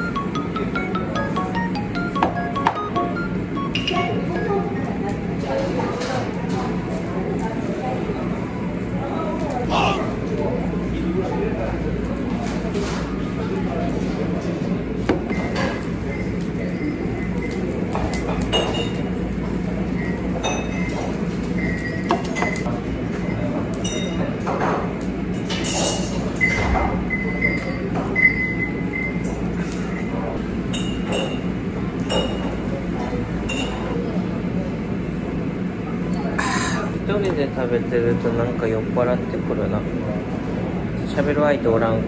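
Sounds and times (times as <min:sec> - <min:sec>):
faint background voices: 0:04.1 - 0:15.0.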